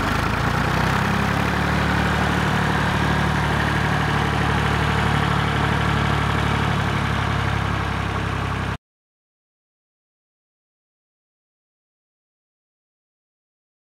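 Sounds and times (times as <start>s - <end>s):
tractor engine running: 0.0s - 8.8s.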